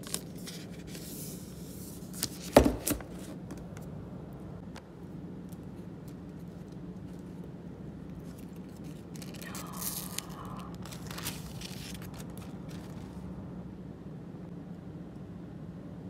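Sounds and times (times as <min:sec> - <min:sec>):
steady low hum: 0:00.0 - 0:16.0
packaging crinkling and scraping: 0:05.5 - 0:13.3.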